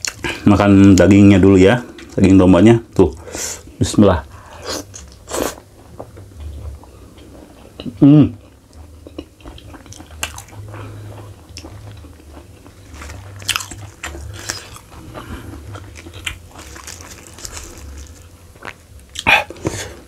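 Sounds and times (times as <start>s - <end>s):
wet chewing mouth sounds: 4.8s - 19.8s
crisp crunching of leaves: 15.8s - 18.3s.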